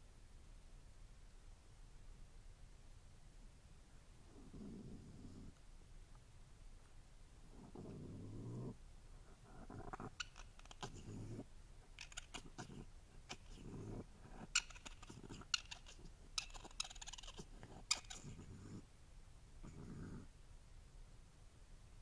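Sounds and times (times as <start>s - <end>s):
low animal grunt: 12.4s - 15.5s, 19.6s - 20.3s.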